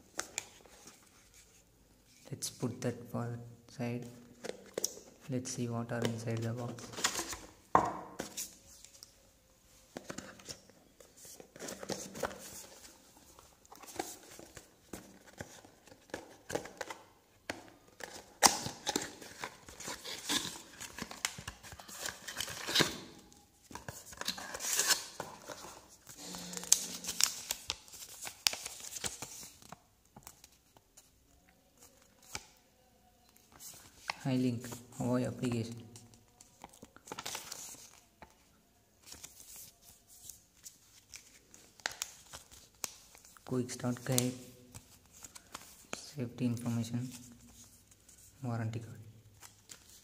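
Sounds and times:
cardboard and paper rustling: 9.9s - 17.0s.

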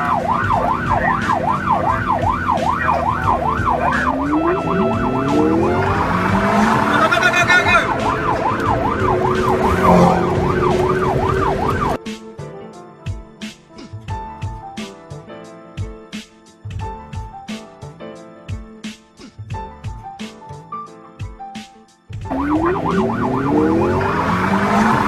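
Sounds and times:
car engine revving: 0.0s - 12.0s, 22.3s - 25.0s
police siren wailing: 0.0s - 12.0s, 22.3s - 25.0s
traffic noise: 0.0s - 12.0s, 22.3s - 25.0s
music: 0.0s - 25.0s.

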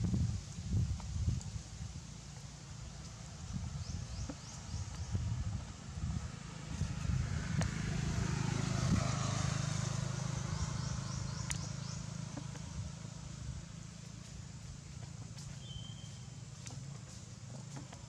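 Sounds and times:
steady low rumble: 0.0s - 18.0s
motor vehicle passing: 2.2s - 18.0s.

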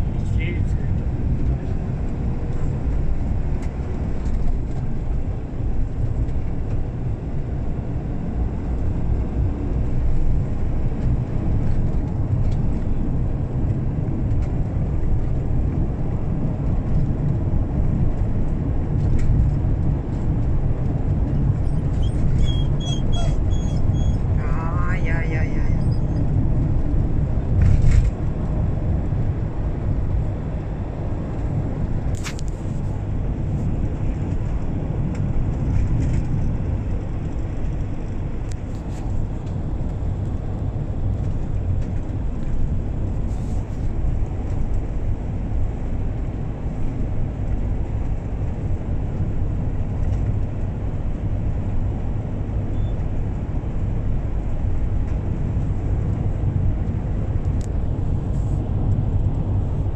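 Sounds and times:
car engine and tyre rumble: 0.0s - 59.9s.

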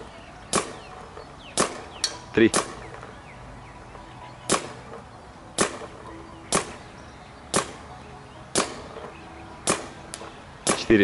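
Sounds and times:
paintball marker shots: 0.4s - 3.2s, 4.5s - 5.0s, 5.6s - 6.8s, 7.5s - 7.8s, 8.5s - 11.0s.

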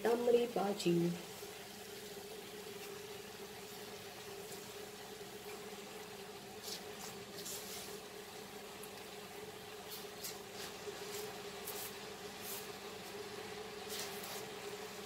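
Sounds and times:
faint steady hum: 0.0s - 15.0s
leaves rustling into a pan: 6.4s - 9.1s, 9.8s - 15.0s.

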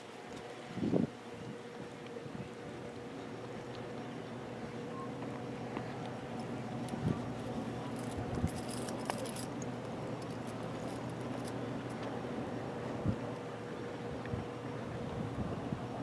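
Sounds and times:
steady low hum: 0.0s - 16.0s
water noise: 0.0s - 16.0s
wind: 0.0s - 16.0s
light metallic jingling: 7.7s - 11.9s.

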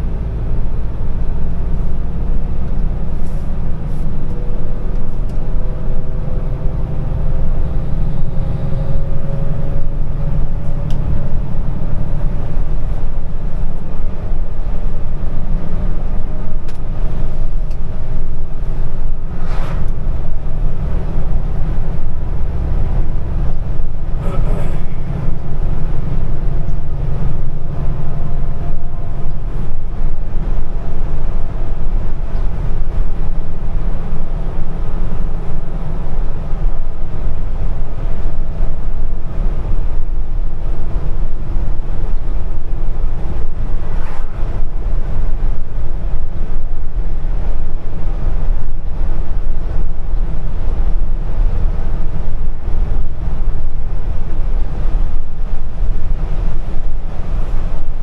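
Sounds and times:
heavy truck engine rumble: 0.0s - 58.0s.

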